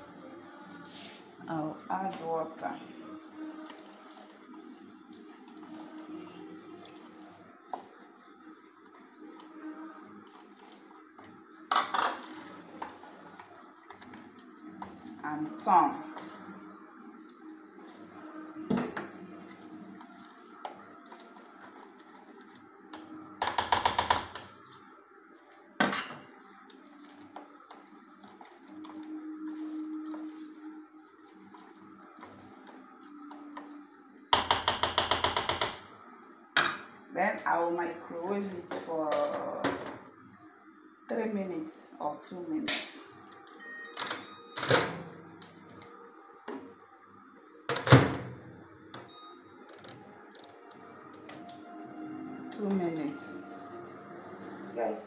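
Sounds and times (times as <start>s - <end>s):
spoon stirring thick dough: 3.3s - 35.6s.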